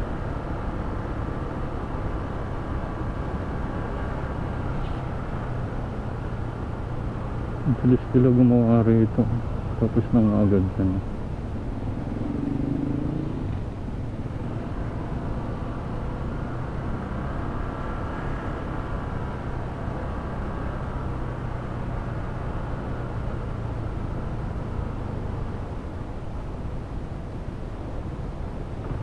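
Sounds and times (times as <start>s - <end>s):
road and wind noise: 0.0s - 29.0s.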